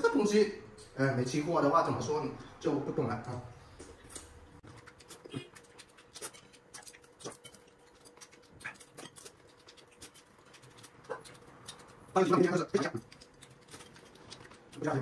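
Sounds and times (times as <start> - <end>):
chewing crisp food: 3.8 - 15.0.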